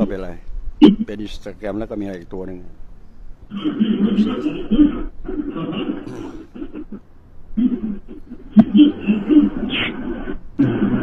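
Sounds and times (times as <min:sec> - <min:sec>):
man chuckling: 0:03.9 - 0:04.9, 0:06.0 - 0:07.0.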